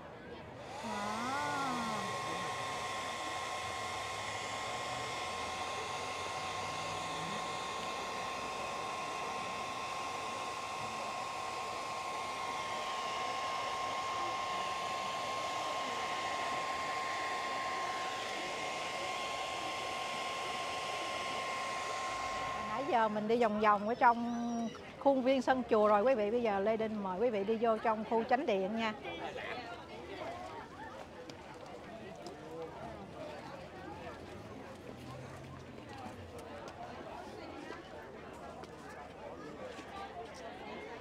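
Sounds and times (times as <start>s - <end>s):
faint voices: 0.0s - 41.0s
machine hissing with high whine: 0.6s - 24.7s.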